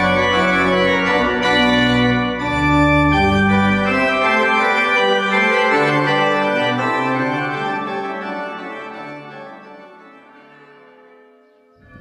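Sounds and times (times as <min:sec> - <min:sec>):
pipe organ playing chords: 0:00.0 - 0:12.0.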